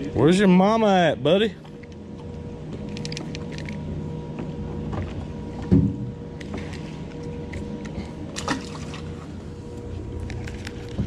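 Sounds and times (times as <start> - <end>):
steady low hum: 0.0 - 11.0
thump against the hull: 5.7 - 6.1
water lapping against a boat: 6.4 - 9.9.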